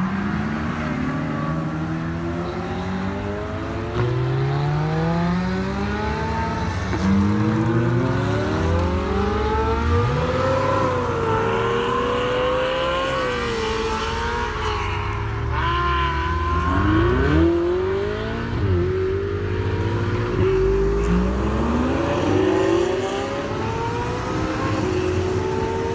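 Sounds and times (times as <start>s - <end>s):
sports cars accelerating hard: 0.0s - 25.9s.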